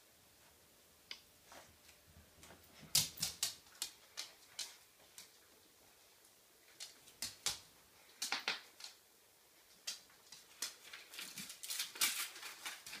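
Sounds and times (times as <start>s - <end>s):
dog claws clicking on floor: 2.4s - 5.5s, 6.7s - 9.0s, 9.6s - 13.0s.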